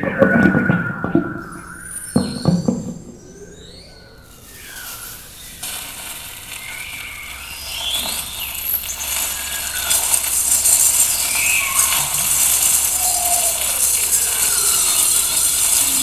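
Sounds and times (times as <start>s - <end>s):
faint sliding pitches: 0.0s - 4.2s
scraping rattling noise music: 8.0s - 16.0s.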